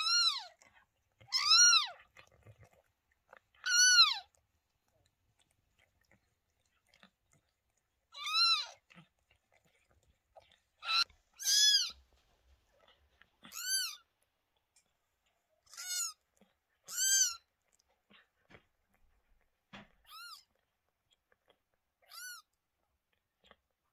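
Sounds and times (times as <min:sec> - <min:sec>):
newborn kittens mewing: 0:00.0 - 0:00.6, 0:01.2 - 0:02.2, 0:03.6 - 0:04.4, 0:08.0 - 0:09.2, 0:10.7 - 0:12.1, 0:13.4 - 0:14.1, 0:15.6 - 0:17.5, 0:20.0 - 0:20.5, 0:22.0 - 0:22.5.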